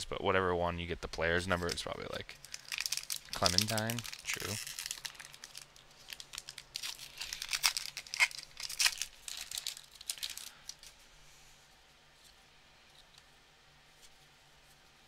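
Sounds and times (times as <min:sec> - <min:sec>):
wrapper being torn and crinkled: 0:02.3 - 0:11.0.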